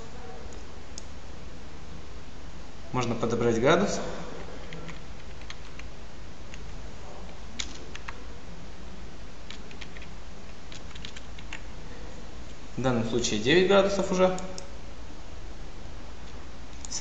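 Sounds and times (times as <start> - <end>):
steady low hum: 0.0 - 17.0
keyboard and mouse clicks: 9.5 - 10.1, 10.7 - 11.6.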